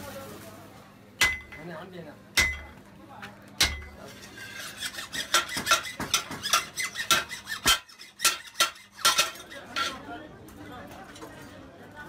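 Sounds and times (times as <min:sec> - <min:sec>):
steel blade rasping on anvil: 0:03.6 - 0:10.0.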